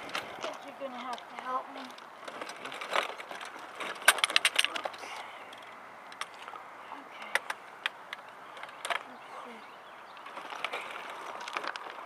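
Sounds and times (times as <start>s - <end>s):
wheelchair wheels rolling over gravel: 0.0s - 5.5s, 8.2s - 12.0s.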